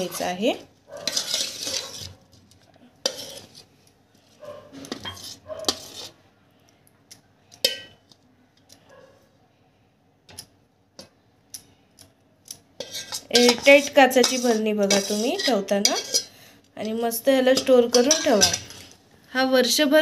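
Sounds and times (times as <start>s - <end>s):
spoon scraping and clinking on metal: 1.0s - 2.2s, 3.0s - 3.6s, 4.7s - 6.2s, 7.6s - 8.0s, 12.8s - 16.4s, 17.5s - 19.0s.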